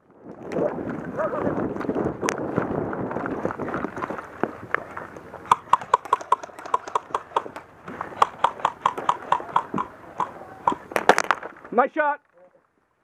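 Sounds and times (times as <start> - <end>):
paintball marker firing: 5.4 - 11.6.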